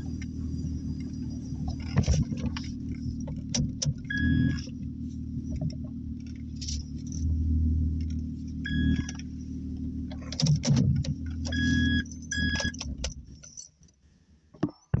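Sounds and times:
car engine idling: 0.0s - 14.5s
short high beeps: 11.5s - 12.8s
keys jangling: 12.0s - 13.8s.

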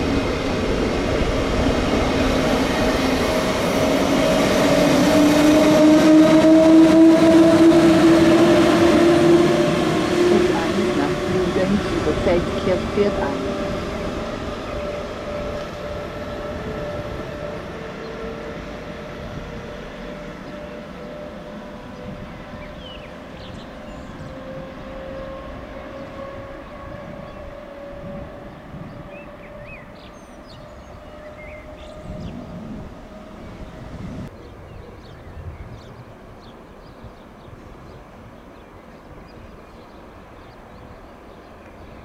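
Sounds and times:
electric locomotive whine: 0.0s - 42.0s
train running noise: 0.0s - 42.0s
birds chirping: 8.5s - 25.0s, 28.4s - 42.0s.

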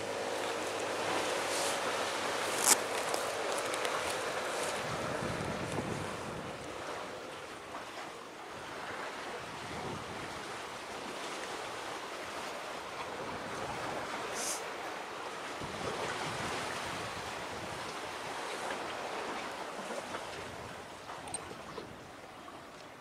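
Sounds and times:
water noise: 0.0s - 23.0s
wind: 0.0s - 23.0s
wind on microphone: 1.0s - 7.0s, 9.4s - 10.5s, 15.6s - 18.0s
brief high hiss: 14.4s - 14.6s.

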